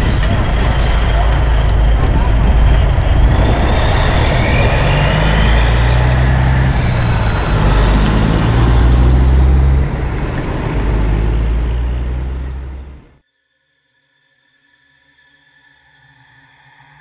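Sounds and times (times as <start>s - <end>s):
diesel truck engine running: 0.0s - 13.2s.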